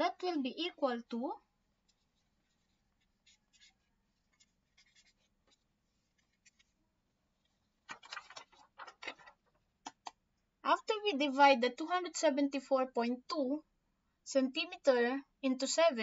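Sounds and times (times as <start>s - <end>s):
marker writing on whiteboard: 1.8s - 6.7s.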